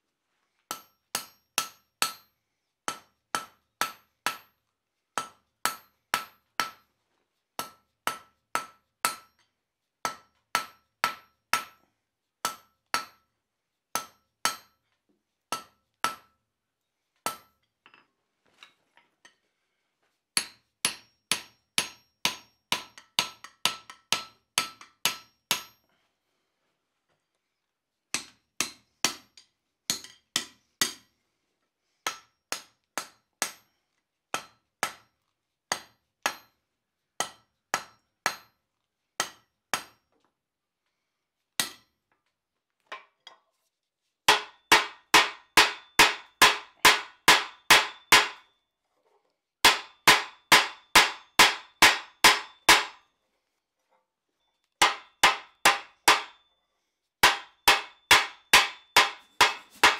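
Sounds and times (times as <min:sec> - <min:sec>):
hammer striking steel on anvil: 0:00.7 - 0:02.3, 0:02.9 - 0:04.6, 0:05.2 - 0:06.9, 0:07.6 - 0:11.8, 0:12.4 - 0:13.3, 0:13.9 - 0:14.8, 0:15.5 - 0:16.4, 0:17.2 - 0:18.0, 0:20.4 - 0:25.8, 0:28.1 - 0:31.1, 0:32.0 - 0:35.1, 0:35.7 - 0:36.6, 0:37.2 - 0:38.6, 0:39.2 - 0:40.0, 0:41.6 - 0:41.9, 0:44.3 - 0:48.5, 0:49.6 - 0:53.0, 0:54.8 - 0:56.5, 0:57.2 - 0:59.9.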